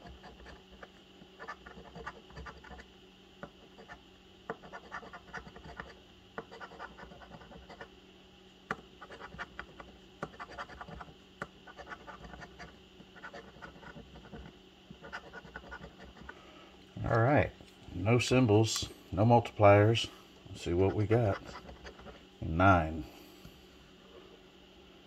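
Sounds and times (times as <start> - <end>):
coin scraping scratch card: 0.0 - 2.9, 3.6 - 7.9, 9.0 - 11.1, 11.7 - 16.4, 20.8 - 22.2.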